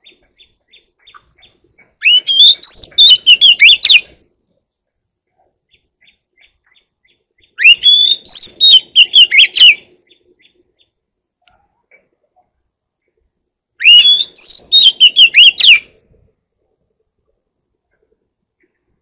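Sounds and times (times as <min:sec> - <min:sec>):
bird singing whistled notes: 0:00.0 - 0:04.8, 0:05.6 - 0:11.0, 0:13.7 - 0:15.9.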